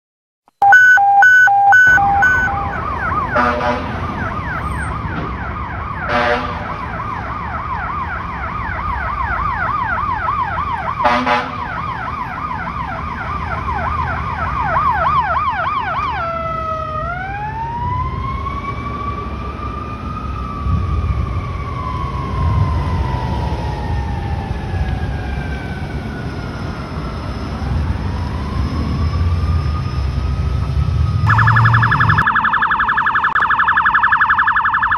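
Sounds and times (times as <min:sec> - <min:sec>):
rapid electronic beeps: 0:00.6 - 0:02.8, 0:31.3 - 0:34.9
air horn blasts: 0:00.6 - 0:04.0, 0:06.1 - 0:06.7, 0:11.0 - 0:11.6
siren wail: 0:00.6 - 0:34.9
siren yelp: 0:00.6 - 0:34.9.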